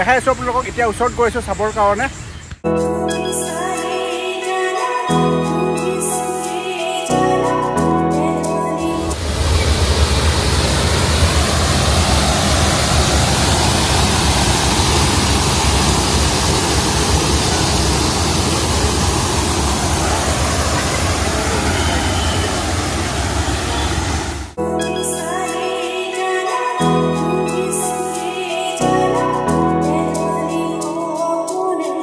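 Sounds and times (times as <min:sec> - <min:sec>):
background music: 0:02.6 - 0:09.2, 0:24.6 - 0:32.0
fountain water splashing into basin: 0:09.1 - 0:24.4.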